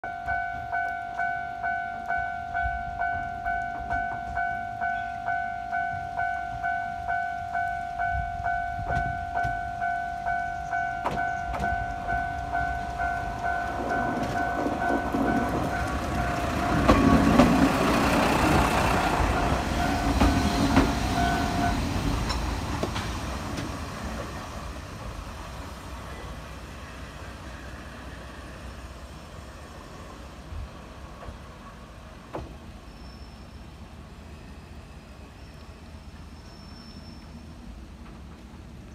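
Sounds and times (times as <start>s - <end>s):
level-crossing warning bell ringing: 0.0s - 21.9s
diesel railcar passing: 0.0s - 38.9s.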